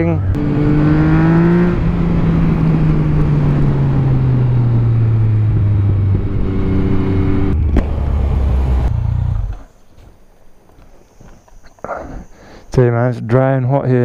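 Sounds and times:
motorcycle engine revs falling: 0.0s - 10.2s.

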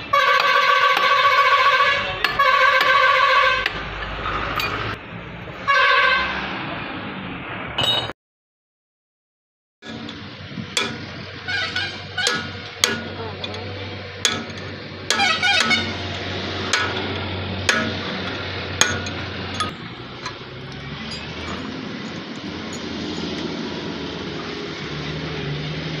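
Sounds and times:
hammer striking metal: 0.3s - 5.0s, 7.8s - 8.1s, 9.8s - 23.6s
steady rumbling noise: 9.8s - 26.0s.

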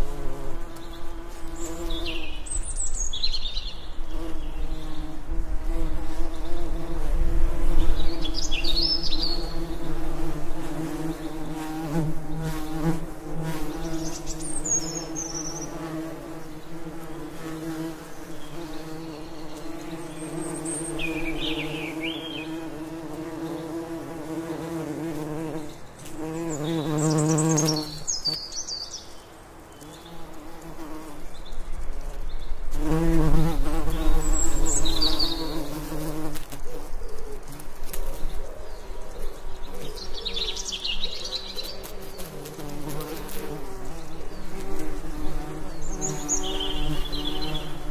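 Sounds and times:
bees buzzing: 0.0s - 3.0s, 4.0s - 28.5s, 32.7s - 36.6s, 39.6s - 47.9s
bird chirps and calls: 16.8s - 22.7s, 33.9s - 36.0s, 38.1s - 42.3s, 45.2s - 47.8s.

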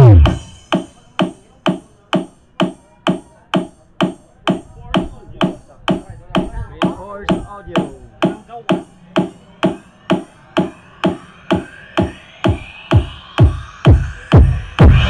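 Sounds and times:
electronic dance music: 0.0s - 15.0s
kick drum: 12.9s - 15.0s.

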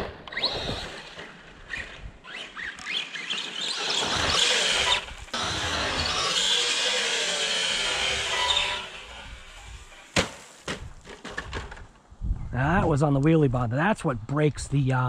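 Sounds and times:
electric motor whine: 0.3s - 10.1s.

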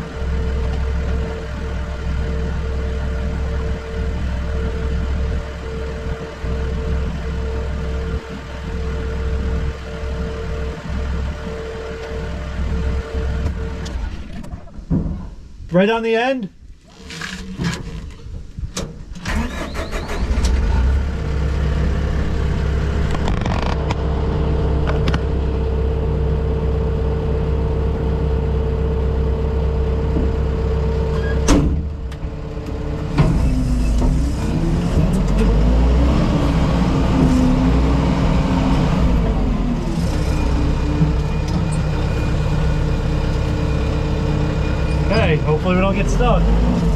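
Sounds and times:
diesel engine droning: 0.0s - 15.6s, 16.9s - 46.9s
sharp clunk: 31.4s - 31.9s.

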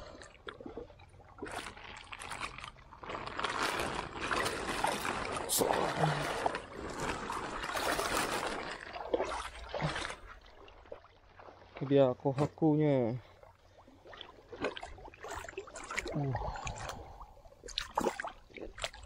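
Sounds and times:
water splashing: 0.0s - 19.0s
plastic bag crinkling: 1.7s - 5.5s.

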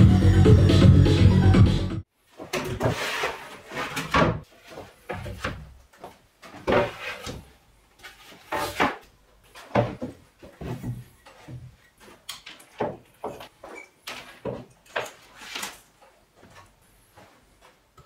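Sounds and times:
wooden panels knocking and scraping: 2.4s - 15.8s.

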